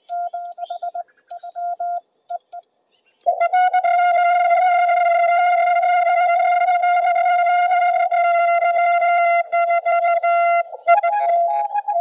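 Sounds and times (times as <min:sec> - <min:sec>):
morse code tone: 0:00.0 - 0:02.5.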